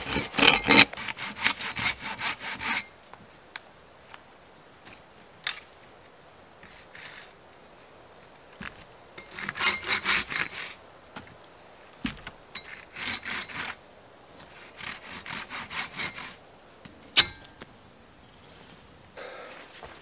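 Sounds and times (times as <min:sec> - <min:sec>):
hand saw cutting branch: 0:00.0 - 0:02.9, 0:09.2 - 0:10.8, 0:12.6 - 0:13.8, 0:14.4 - 0:16.4.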